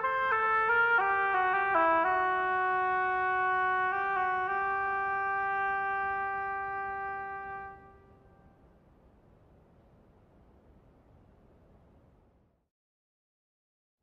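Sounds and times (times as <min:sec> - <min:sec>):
solo oboe: 0:00.0 - 0:08.6.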